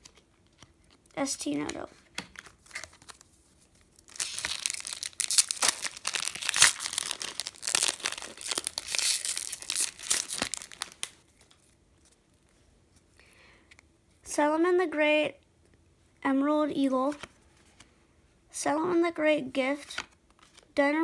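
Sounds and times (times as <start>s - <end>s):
foil wrapper crinkling and tearing: 3.9s - 11.2s.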